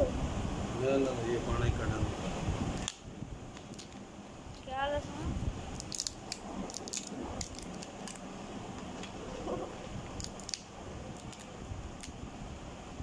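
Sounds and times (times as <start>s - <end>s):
paper and plastic crackling: 5.8s - 8.2s.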